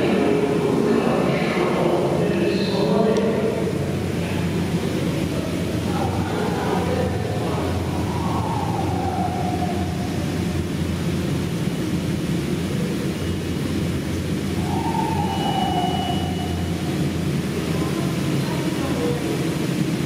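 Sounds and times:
subway train rumbling in tunnel: 0.0 - 20.0
train whine falling in pitch: 14.5 - 17.3.

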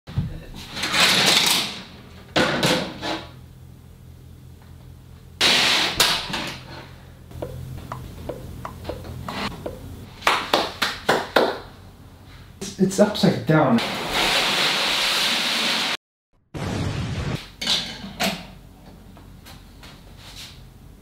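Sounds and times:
hand claps: 10.2 - 11.7.

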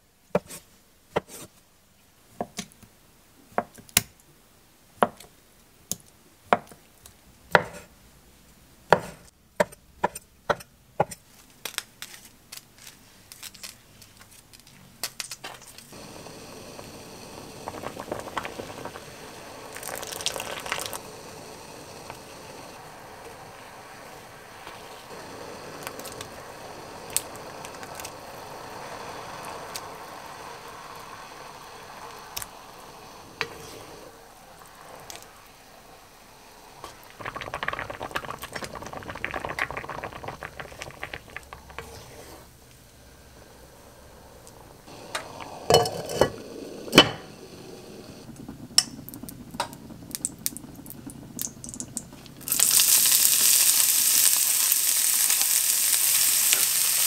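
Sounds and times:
knife chopping on wooden board: 7.6 - 7.9
water simmering in a pot: 15.9 - 57.0
water pouring: 16.0 - 42.6, 50.2 - 57.0.

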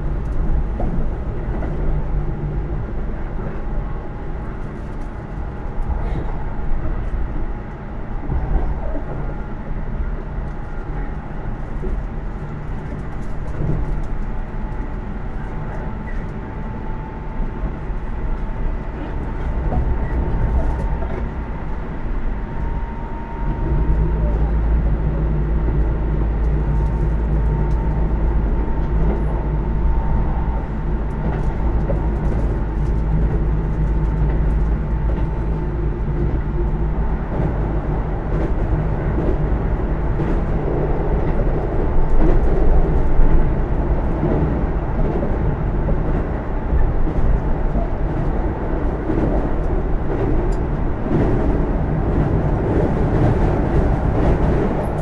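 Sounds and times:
train wheels on rail: 0.0 - 55.0
rail clicks: 25.6 - 55.0.

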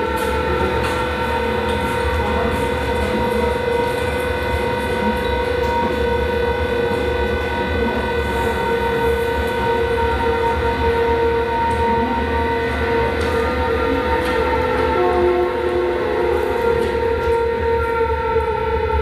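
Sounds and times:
electronic drone music: 0.0 - 19.0.

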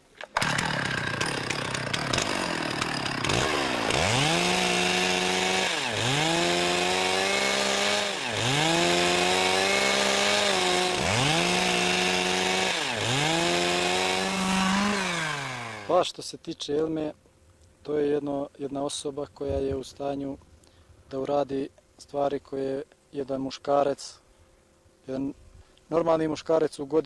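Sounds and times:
chainsaw revving and cutting log: 0.2 - 16.0.

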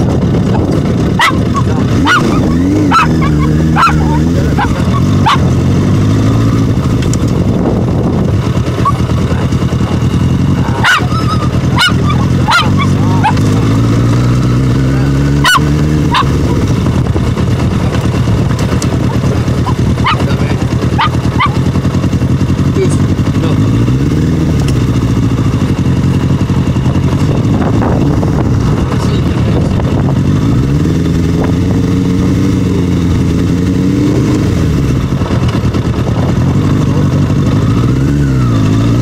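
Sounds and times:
motorcycle engine revving: 0.0 - 39.0
small dog barking: 1.2 - 5.5, 8.8 - 9.1, 10.6 - 13.5, 15.4 - 16.6, 19.0 - 20.3, 20.9 - 21.7.

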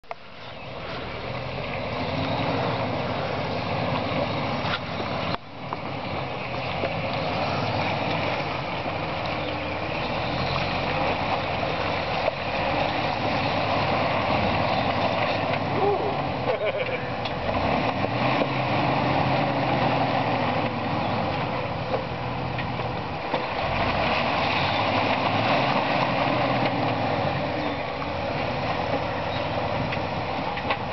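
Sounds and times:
car engine at low revs: 0.0 - 30.9.

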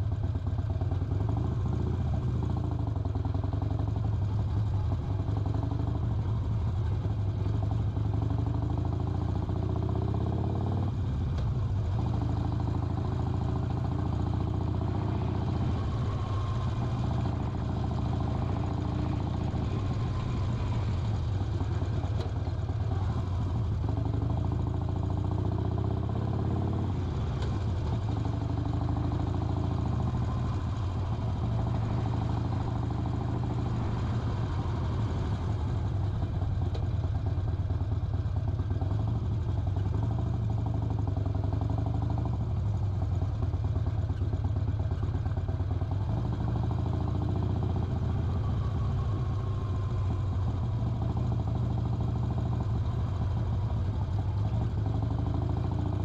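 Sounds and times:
motorcycle engine droning: 0.0 - 56.0.

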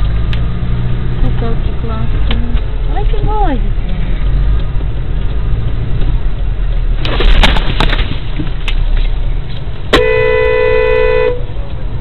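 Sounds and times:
car engine and road rumble: 0.0 - 12.0
sharp cracks and knocks: 4.2 - 10.0
car horn held: 9.9 - 11.5.

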